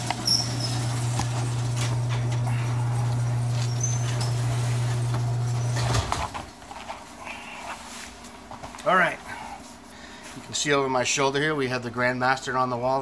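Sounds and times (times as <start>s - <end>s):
garage door opener humming: 0.0s - 6.5s.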